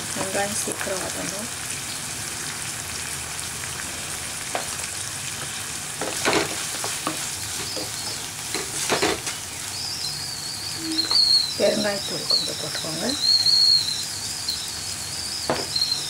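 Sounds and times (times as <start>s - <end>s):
onions sizzling in oil: 0.0s - 16.0s
spoon scraping a pan: 6.0s - 9.3s.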